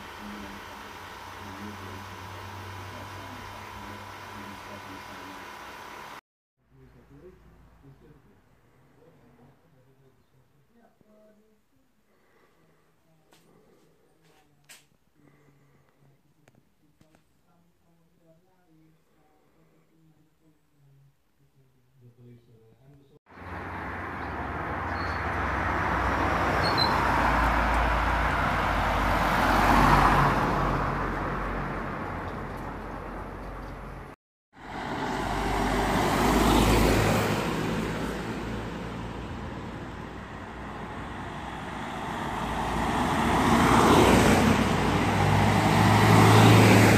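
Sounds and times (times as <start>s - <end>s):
vehicles passing: 0.0s - 10.0s, 23.3s - 46.9s.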